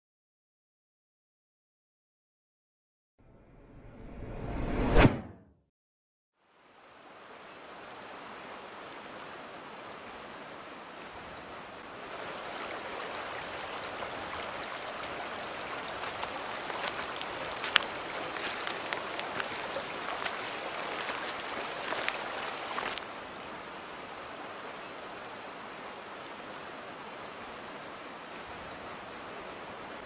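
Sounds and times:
flowing river water: 6.4s - 30.0s.

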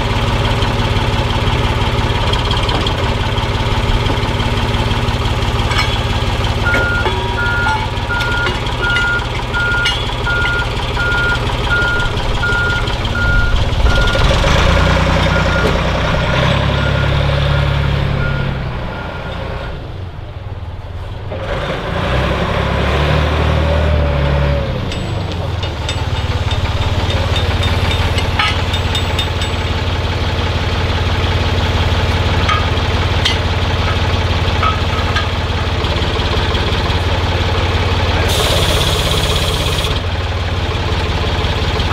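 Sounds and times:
heavy machine engine running: 0.0s - 41.9s
light metal clanks: 2.2s - 11.2s, 24.9s - 29.9s, 32.2s - 35.8s
backup alarm beeping: 6.6s - 14.4s.

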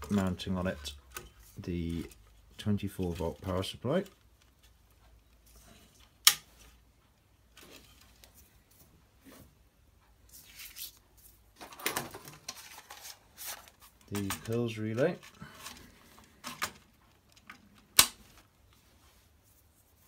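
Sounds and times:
rustling and scraping of hands: 12.4s - 16.4s, 18.7s - 20.0s.

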